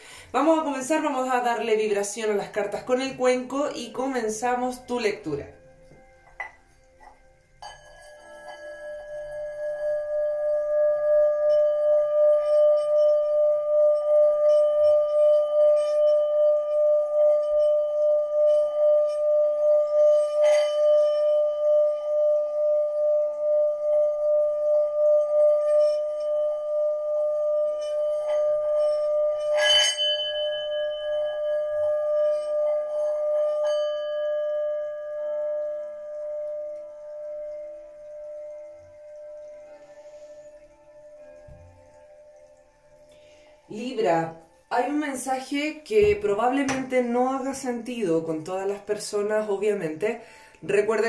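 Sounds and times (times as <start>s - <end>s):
singing bowl ringing: 0.2s - 51.0s
mallet knocking bowl rim: 5.2s - 9.9s, 41.3s - 42.0s, 45.9s - 47.1s.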